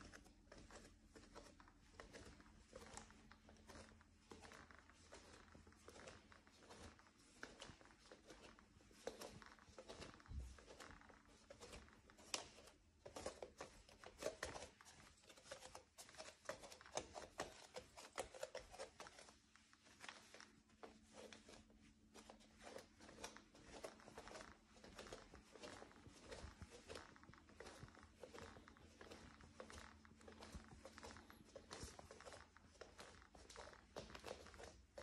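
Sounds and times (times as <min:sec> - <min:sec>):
wooden floorboards creaking: 0:00.7 - 0:12.7, 0:22.6 - 0:35.0.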